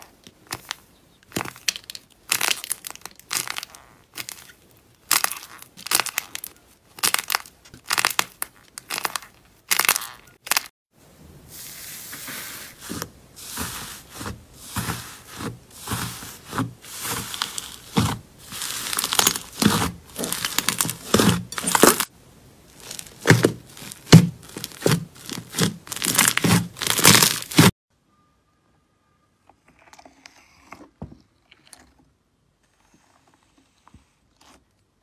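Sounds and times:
slime squelching and crackling: 0.0s - 10.7s, 12.7s - 22.1s, 22.7s - 27.8s.

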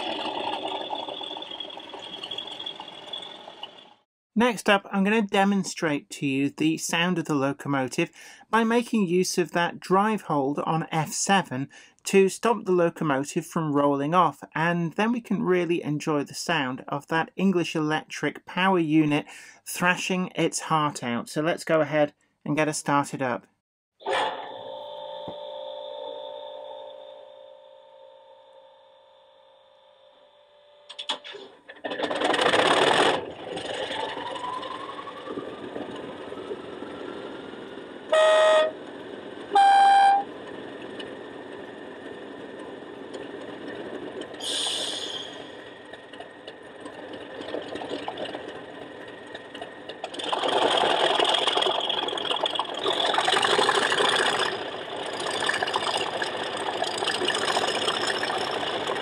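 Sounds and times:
diesel engine starting and revving: 0.0s - 4.0s, 31.6s - 59.0s
locomotive horn blasts: 38.1s - 38.8s, 39.5s - 40.3s
rising engine whistle: 38.1s - 38.8s, 39.5s - 40.3s, 44.4s - 45.6s.

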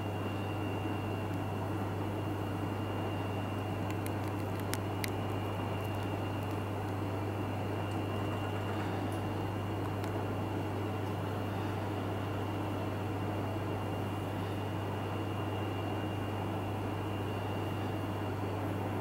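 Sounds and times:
low electrical hum with hiss: 0.0s - 15.2s
faint high whine: 0.0s - 19.0s.

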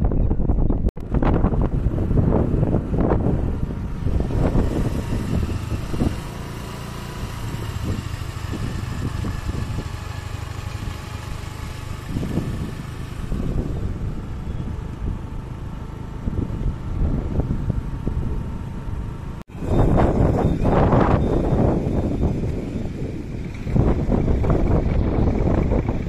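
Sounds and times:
wind rumbling on microphone: 0.0s - 26.0s
vehicle engine running: 0.4s - 26.0s.

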